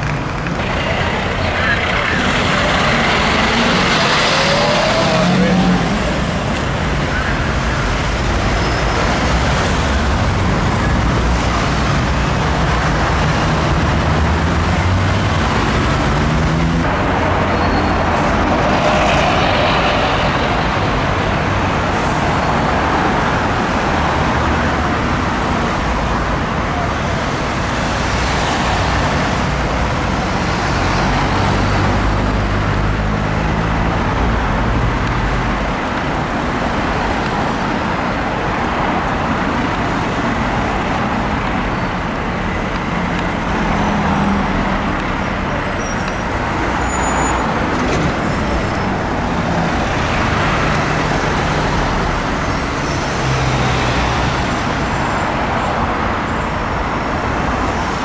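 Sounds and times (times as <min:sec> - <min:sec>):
diesel engine rumble: 0:00.0 - 0:23.9
passing road traffic: 0:00.0 - 0:58.0.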